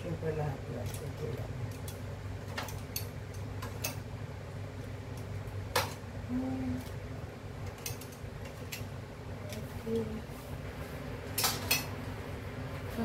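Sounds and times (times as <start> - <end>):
appliance humming: 0.0 - 13.0
kitchen clicks and knocks: 0.8 - 4.0, 7.6 - 8.9, 11.3 - 12.0.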